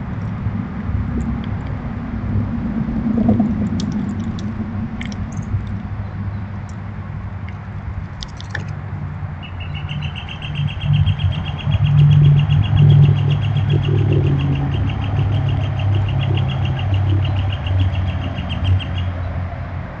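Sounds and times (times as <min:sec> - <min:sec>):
low engine rumble: 0:00.0 - 0:20.0
bird trilling: 0:09.4 - 0:19.2.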